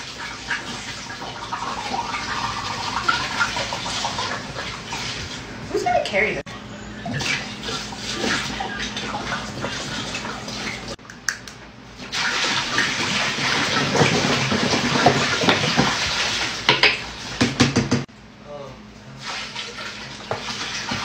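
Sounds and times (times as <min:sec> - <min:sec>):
juice pouring into plastic tub: 0:12.0 - 0:16.6.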